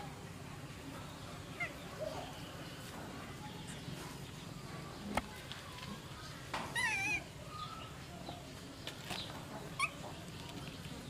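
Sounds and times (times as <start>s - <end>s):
low background noise: 0.0s - 11.0s.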